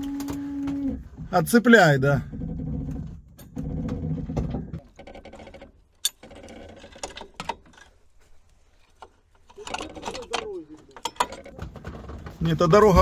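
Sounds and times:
metallic clicks and clinks: 0:08.9 - 0:11.6.

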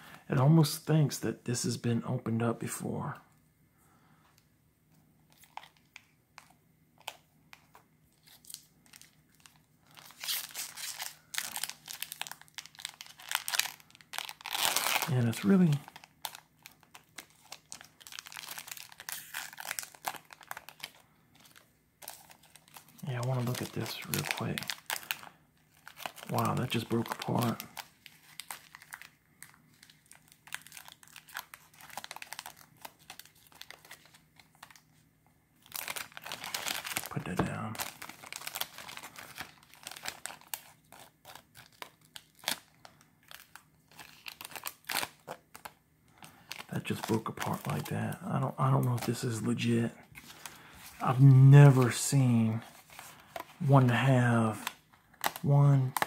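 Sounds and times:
foil wrapper crackling and tearing: 0:05.3 - 0:34.9, 0:35.6 - 0:56.0.

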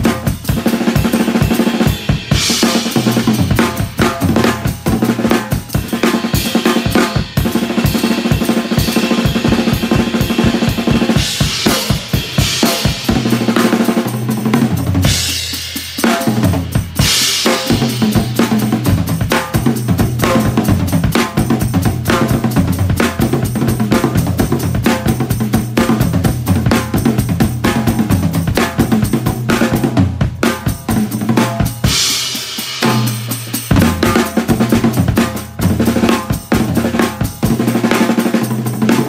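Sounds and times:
bass drum and snare hits: 0:22.0 - 0:37.6.

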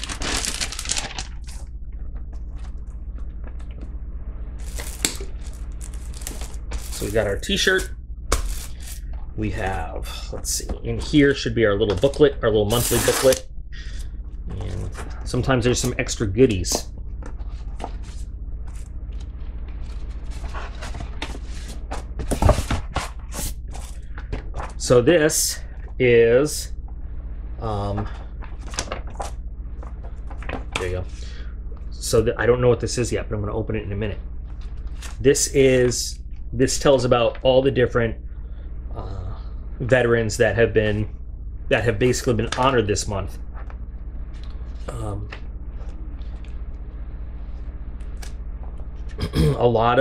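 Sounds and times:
packaging rustling and crinkling: 0:00.0 - 0:01.7, 0:04.6 - 0:09.0
low hum: 0:00.0 - 0:50.0.

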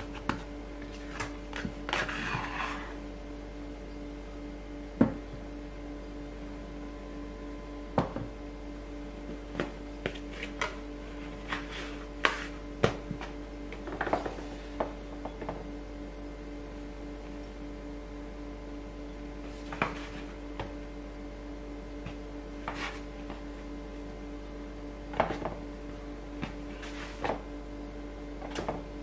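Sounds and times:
faint steady hum: 0:00.0 - 0:29.0
scraper and dough knocking on bowl: 0:11.4 - 0:13.4, 0:22.1 - 0:23.5.

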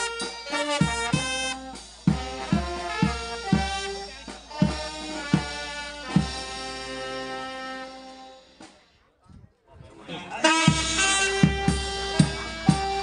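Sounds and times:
brass band playing: 0:00.0 - 0:08.9, 0:10.3 - 0:13.0
bass drum strikes: 0:10.7 - 0:13.0.

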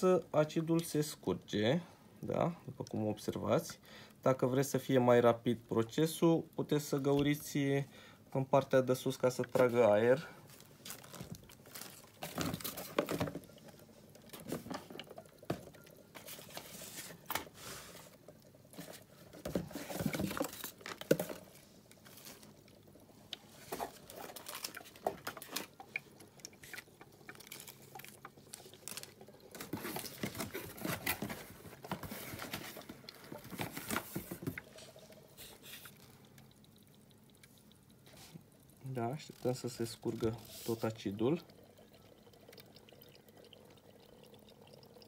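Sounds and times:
acid draining with gurgles: 0:00.0 - 0:45.0.

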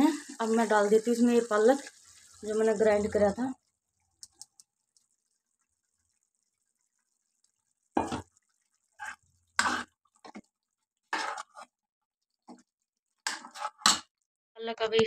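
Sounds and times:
metal ladle stirring thick gravy: 0:04.6 - 0:14.0.

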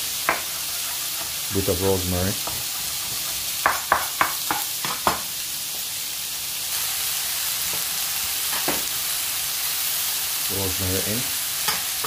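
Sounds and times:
mushrooms sizzling in a pan: 0:00.0 - 0:12.0
knife striking cutting board: 0:02.4 - 0:05.3.

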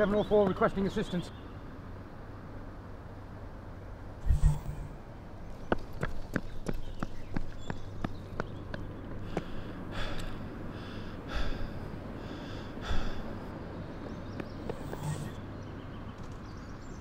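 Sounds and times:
man breathing hard and gasping: 0:09.2 - 0:13.6.

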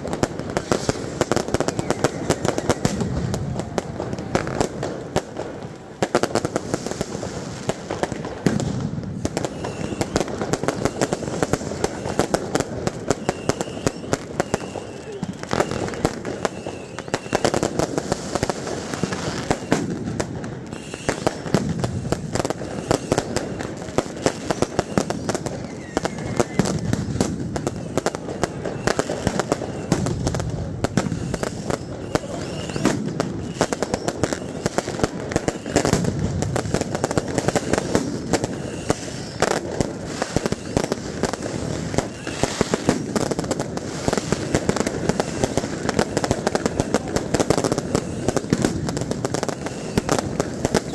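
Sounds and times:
fireworks and firecrackers banging: 0:00.0 - 0:50.9
large crowd noise: 0:00.0 - 0:50.9.

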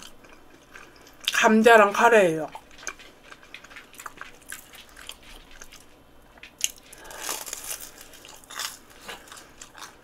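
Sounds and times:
chewing crispy food: 0:00.0 - 0:10.0
crunchy bite: 0:06.6 - 0:10.0.

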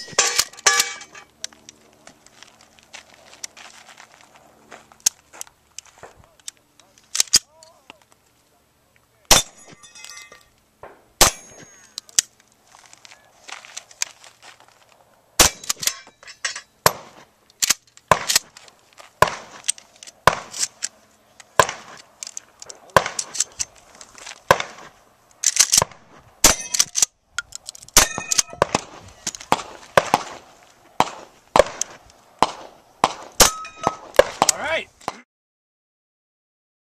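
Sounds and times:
metallic ringing: 0:00.0 - 0:01.3, 0:09.3 - 0:10.6, 0:11.2 - 0:12.1, 0:15.5 - 0:17.0, 0:28.0 - 0:28.6, 0:33.4 - 0:34.0
pistol and shotgun shots: 0:09.3 - 0:09.8, 0:10.8 - 0:11.9, 0:15.4 - 0:16.0, 0:16.8 - 0:17.2, 0:18.1 - 0:18.5, 0:19.2 - 0:19.6, 0:20.2 - 0:20.7, 0:21.6 - 0:22.0, 0:22.8 - 0:23.6, 0:24.5 - 0:24.9, 0:25.6 - 0:27.0, 0:28.0 - 0:30.4, 0:31.0 - 0:35.2.

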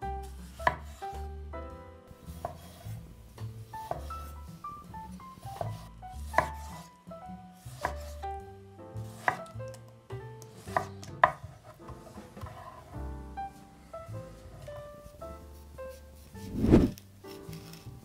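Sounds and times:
soft piano music: 0:00.0 - 0:18.0
knife chopping on wooden board: 0:00.6 - 0:01.0, 0:03.8 - 0:04.3, 0:05.5 - 0:06.9, 0:07.7 - 0:08.1, 0:09.1 - 0:09.5, 0:10.6 - 0:12.6.

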